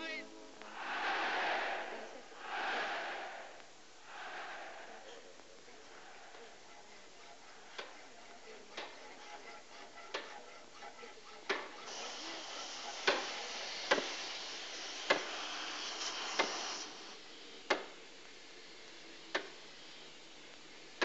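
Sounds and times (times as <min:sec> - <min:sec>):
hiss: 0:02.4 - 0:05.0, 0:10.0 - 0:21.0.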